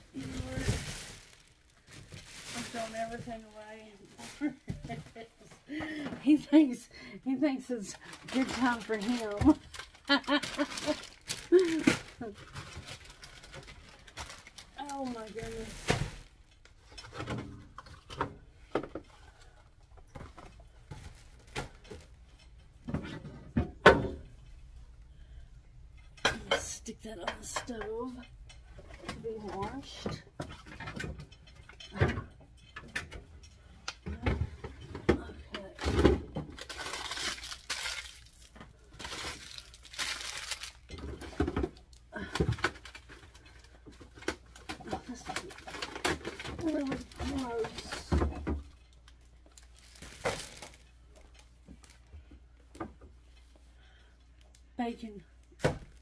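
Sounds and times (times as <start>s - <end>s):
plastic bags crinkling: 0.0s - 5.6s, 7.6s - 18.1s, 35.7s - 52.1s.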